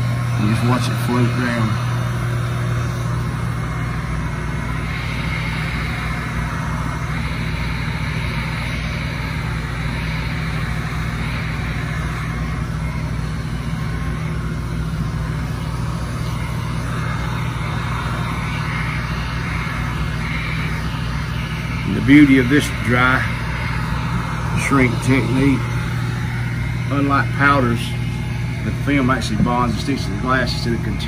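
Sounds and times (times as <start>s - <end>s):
heat gun running: 0.0s - 31.0s.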